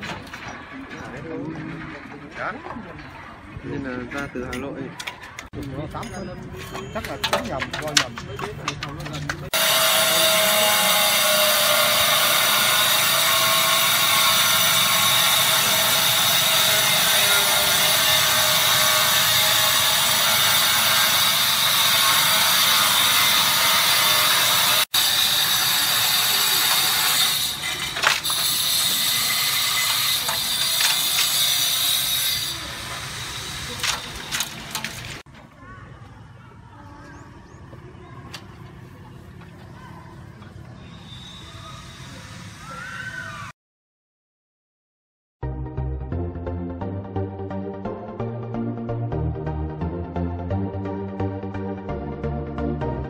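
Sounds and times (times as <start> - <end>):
power tool whining and cutting: 9.5 - 35.1.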